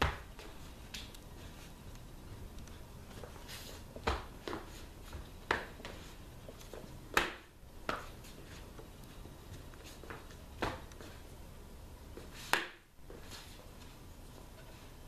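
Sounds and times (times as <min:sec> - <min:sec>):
fighting sticks clacking: 0:03.8 - 0:11.1, 0:12.4 - 0:12.9.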